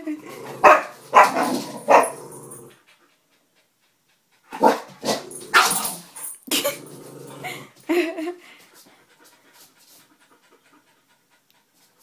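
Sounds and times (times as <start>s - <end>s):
small dog barking: 0.6s - 2.1s.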